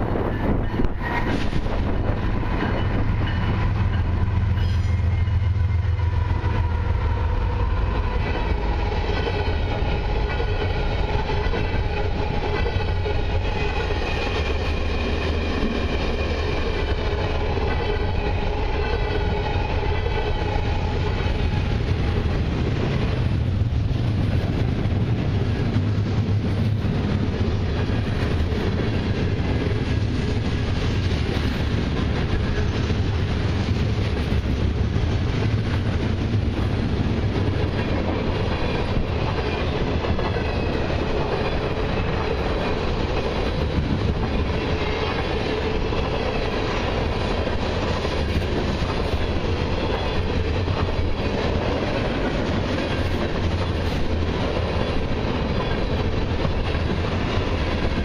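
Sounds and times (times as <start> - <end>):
diesel locomotive low rumble: 0.0 - 58.0
train wheels clattering on rails: 0.0 - 58.0
wavering metallic squeal: 0.2 - 7.7.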